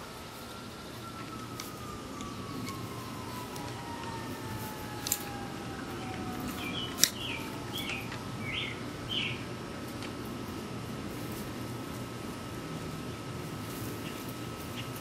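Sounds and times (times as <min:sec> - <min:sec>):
pliers snipping wire: 0:05.0 - 0:05.3
bird chirping: 0:06.0 - 0:09.5.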